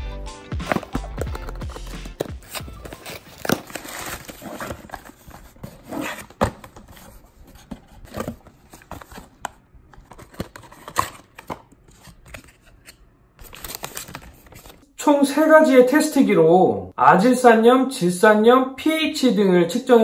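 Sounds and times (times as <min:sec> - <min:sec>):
packing tape tearing: 0:00.6 - 0:06.4
cardboard flaps scraping: 0:00.6 - 0:09.2
small paper boxes rustling: 0:00.6 - 0:14.8.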